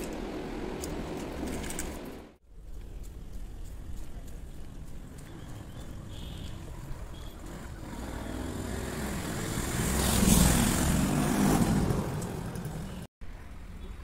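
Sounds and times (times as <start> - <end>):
vehicle driving past: 7.3 - 12.8.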